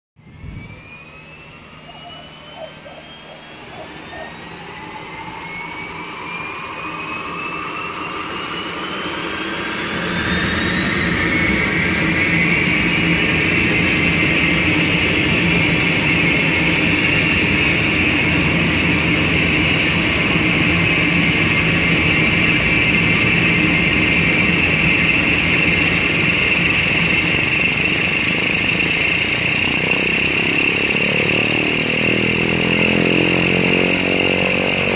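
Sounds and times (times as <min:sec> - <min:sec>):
low propeller hum: 0:00.2 - 0:34.9
turboprop engine whine: 0:00.2 - 0:34.9.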